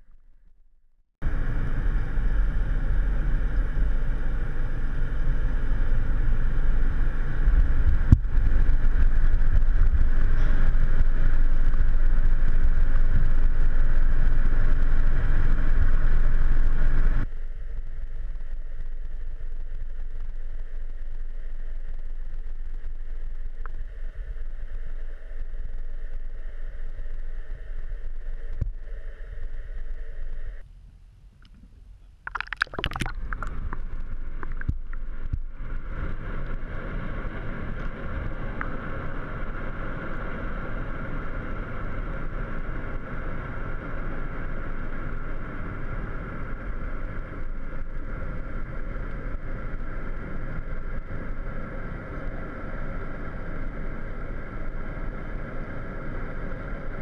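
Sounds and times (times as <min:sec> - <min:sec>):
faint hum: 0:00.0 - 0:57.0
low underwater rumble: 0:01.2 - 0:30.6, 0:31.6 - 0:36.6.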